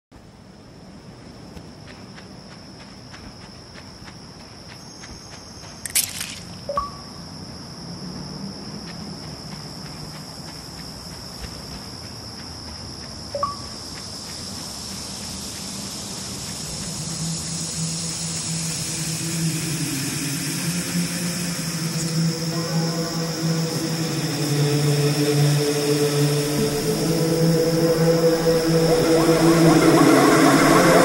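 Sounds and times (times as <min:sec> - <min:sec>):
insect chirring: 0:00.9 - 0:31.0
low droning hum: 0:13.7 - 0:31.0
music intro: 0:18.4 - 0:31.0.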